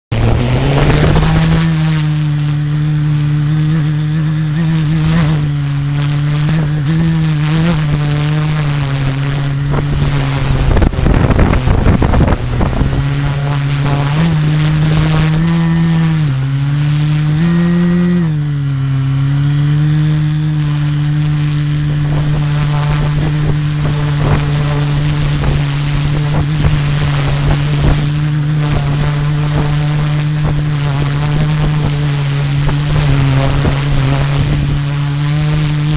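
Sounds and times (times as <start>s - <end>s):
wind gust on microphone: 0.1s - 18.6s, 19.4s - 35.9s
drone motors buzzing: 0.1s - 35.9s.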